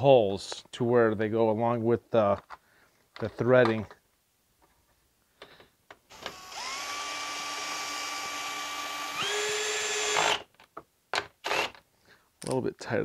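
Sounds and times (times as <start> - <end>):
cordless drill driving a screw: 6.1 - 10.5, 11.4 - 11.8.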